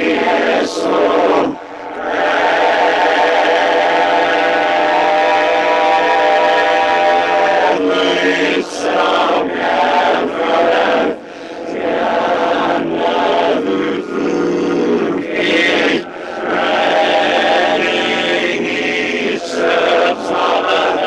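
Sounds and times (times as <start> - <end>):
voices chanting in unison: 0.0 - 21.0.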